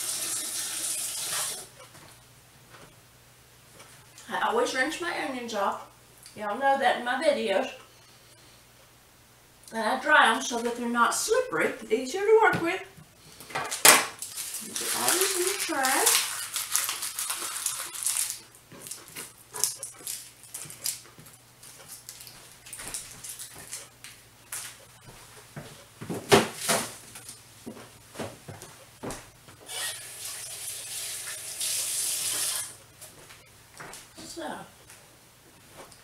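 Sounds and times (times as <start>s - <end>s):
kitchen rustling and clattering: 12.4s - 29.6s.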